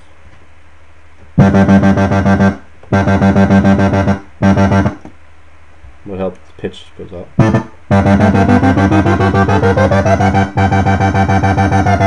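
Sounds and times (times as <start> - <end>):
pulsing synth notes: 1.4 - 5.0, 7.4 - 12.0.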